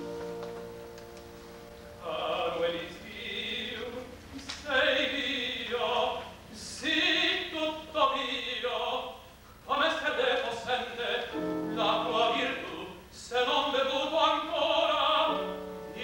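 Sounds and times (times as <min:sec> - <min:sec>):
piano accompaniment: 0:00.0 - 0:03.8, 0:11.1 - 0:16.0
tenor singing opera: 0:01.9 - 0:16.0.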